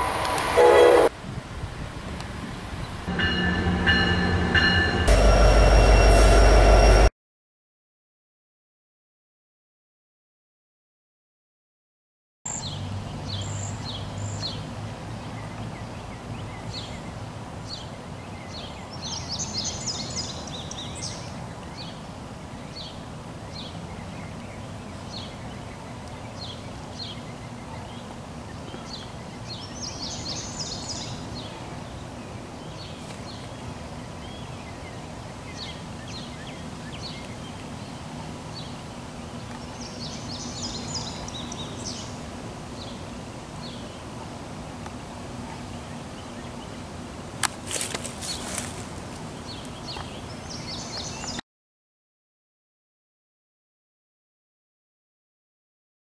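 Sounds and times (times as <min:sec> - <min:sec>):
birds chirping: 0:12.5 - 0:44.4, 0:47.7 - 0:51.4.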